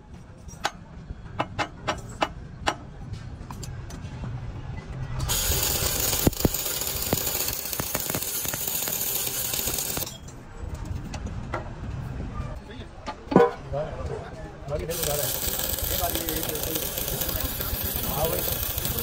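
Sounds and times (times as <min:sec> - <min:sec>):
welding arc crackling and hissing: 0:05.3 - 0:10.1, 0:14.9 - 0:19.0.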